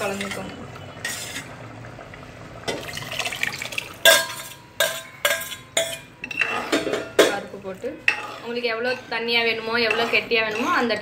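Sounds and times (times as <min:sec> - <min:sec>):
ladle sloshing food: 0:02.6 - 0:07.0
ladle clinking on metal pot: 0:04.0 - 0:11.0.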